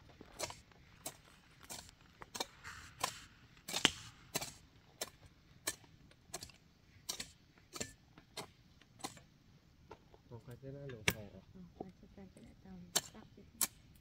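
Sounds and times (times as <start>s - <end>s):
hoe chopping into earth: 0.4s - 9.2s.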